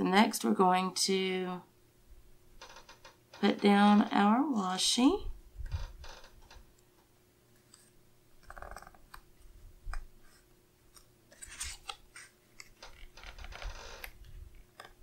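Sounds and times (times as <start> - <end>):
tape and paper rustling: 11.3 - 14.4.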